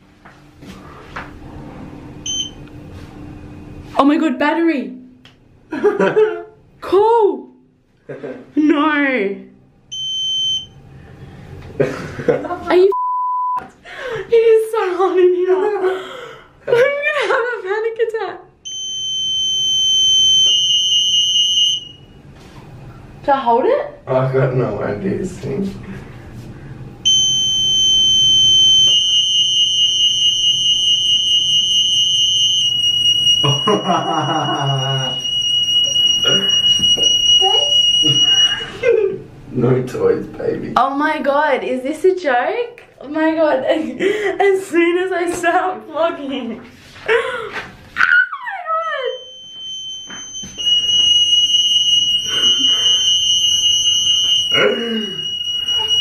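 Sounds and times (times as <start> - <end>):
lift alarm buzzer tone: 2.2 - 3.4, 9.9 - 11.0, 18.6 - 22.3, 27.0 - 38.8, 48.8 - 56.0.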